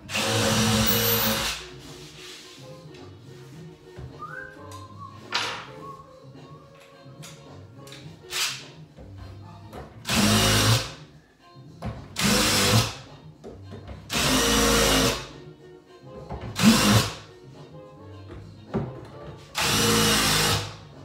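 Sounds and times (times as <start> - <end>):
cordless drill driving screws: 0.1 - 1.6.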